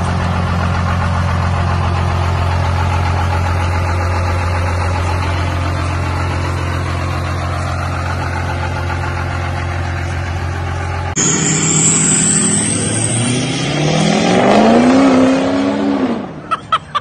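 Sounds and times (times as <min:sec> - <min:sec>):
diesel engine idling: 0:00.0 - 0:13.3.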